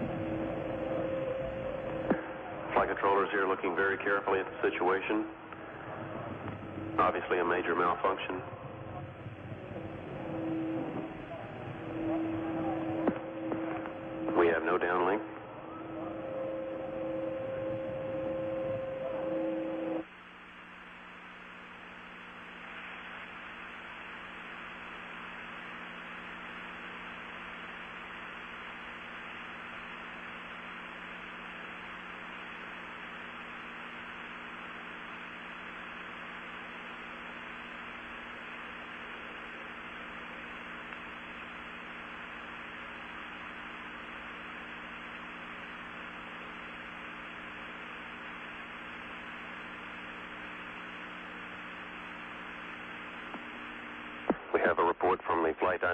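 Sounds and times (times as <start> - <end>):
faint low hum: 0.0 - 55.9
steady tones: 5.4 - 20.1.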